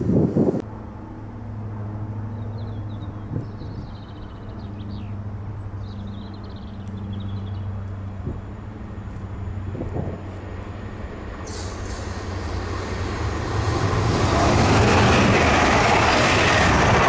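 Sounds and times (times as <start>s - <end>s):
small birds chirping: 2.4s - 7.8s
electric train humming: 6.2s - 17.0s.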